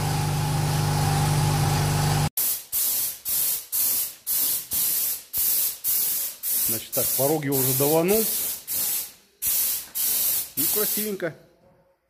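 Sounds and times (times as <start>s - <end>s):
paint spray hiss: 2.4s - 11.2s
short spray passes: 2.4s - 11.2s.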